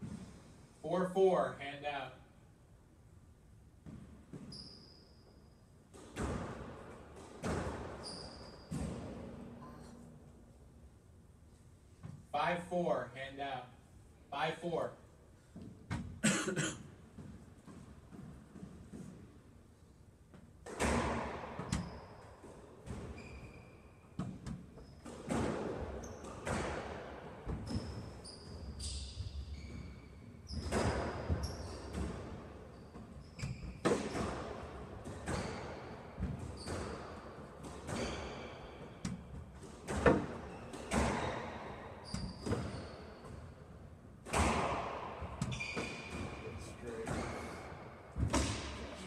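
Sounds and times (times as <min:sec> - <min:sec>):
squash ball hitting rackets and walls: 0:03.7 - 0:05.0, 0:05.8 - 0:10.2, 0:20.2 - 0:49.0
sneakers squeaking on court floor: 0:03.8 - 0:10.1, 0:20.8 - 0:26.7, 0:27.4 - 0:43.7, 0:44.3 - 0:49.0.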